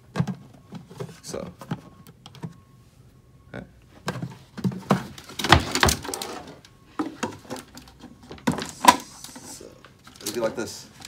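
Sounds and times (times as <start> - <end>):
plastic buckets knocking: 0.0 - 2.6, 4.0 - 9.1.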